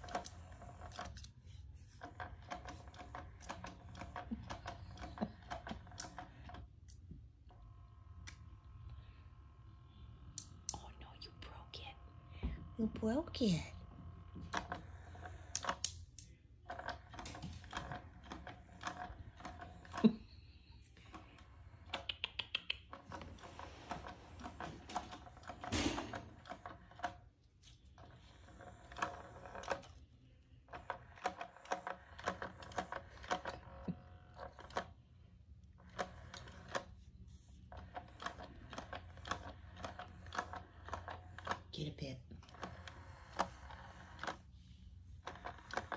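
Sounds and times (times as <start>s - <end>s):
rapid plastic clicks: 0.0s - 7.6s, 14.3s - 20.4s, 30.6s - 35.0s, 35.7s - 41.8s
toy motor whirring: 0.0s - 10.9s, 11.9s - 45.9s.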